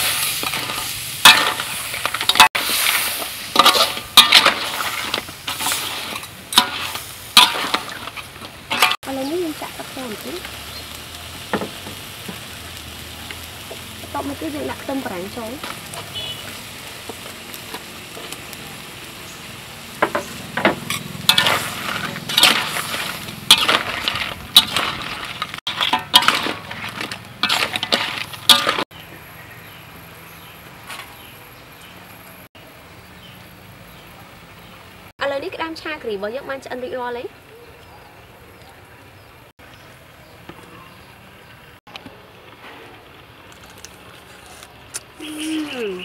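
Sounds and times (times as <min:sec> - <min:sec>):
metal spatula scraping wok: 0:00.0 - 0:10.8, 0:20.0 - 0:28.9
curry sizzling in wok: 0:00.0 - 0:37.6.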